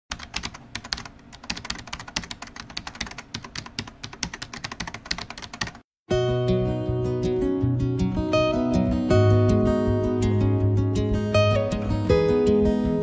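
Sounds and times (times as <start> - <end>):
keyboard typing: 0.1 - 5.8.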